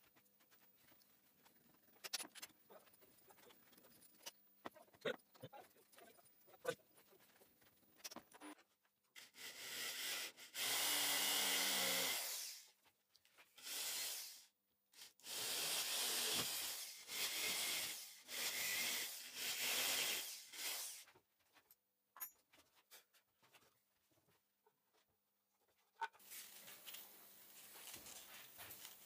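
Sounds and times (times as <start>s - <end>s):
handheld drill boring into wood: 9.2s - 12.7s, 13.6s - 14.5s, 15.2s - 21.1s.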